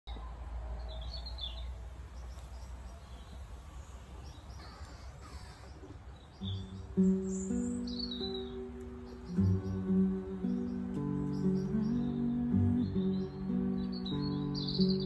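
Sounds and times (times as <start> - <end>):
small birds chirping: 0.1 - 15.0
guitar strings sounding: 6.5 - 15.0.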